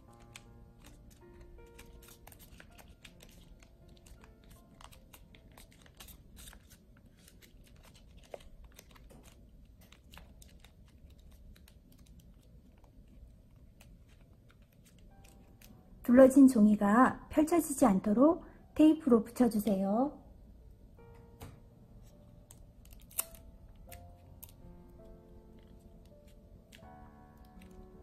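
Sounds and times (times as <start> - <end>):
paper crinkling and rustling: 0.0 - 15.8
small clicks and crackles: 0.1 - 15.7.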